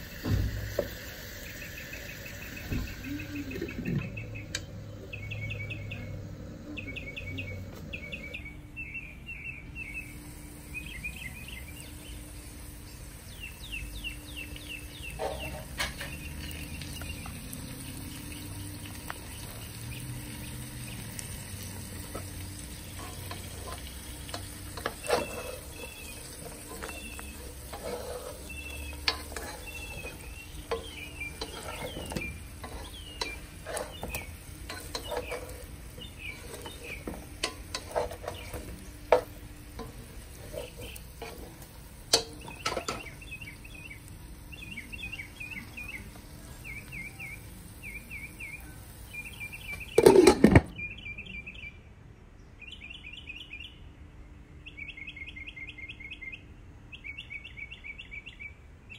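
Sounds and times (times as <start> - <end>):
potatoes sizzling in a pot: 0.0 - 8.4, 9.8 - 50.6
spatula knocking and scraping pan: 15.1 - 16.5, 21.9 - 43.2, 49.9 - 50.7.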